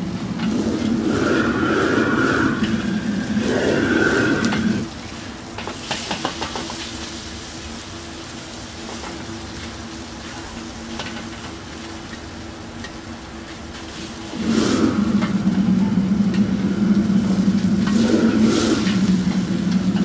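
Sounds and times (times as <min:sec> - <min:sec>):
loud rush: 0:00.0 - 0:05.0, 0:14.2 - 0:20.0
beef sizzling in a wok: 0:03.8 - 0:14.6.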